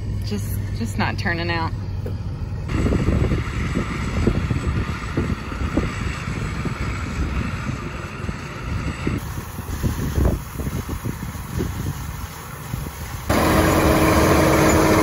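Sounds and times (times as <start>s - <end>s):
combine harvester running: 0.0s - 15.0s
wind buffeting microphone: 2.4s - 15.0s.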